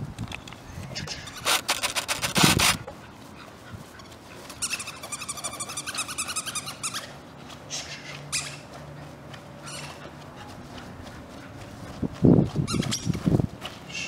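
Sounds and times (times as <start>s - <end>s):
high-pitched puppy yelps: 8.3s - 8.7s.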